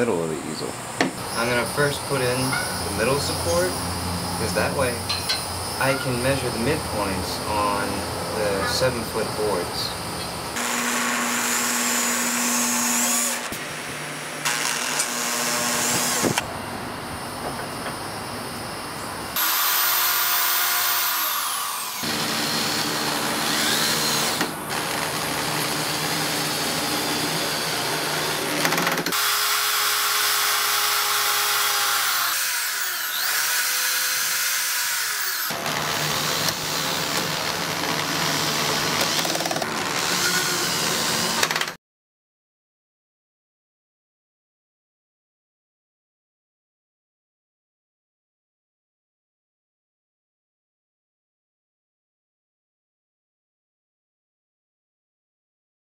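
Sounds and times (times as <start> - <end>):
power drill driving screws: 10.6 - 13.6, 14.4 - 16.4, 19.4 - 41.8.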